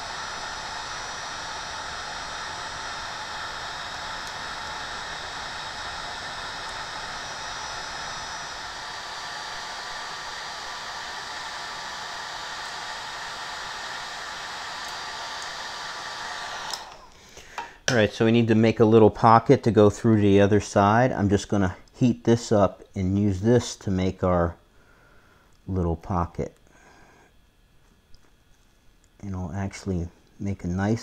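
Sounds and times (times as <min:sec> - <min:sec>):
heat gun blowing hot air: 0:00.0 - 0:17.7.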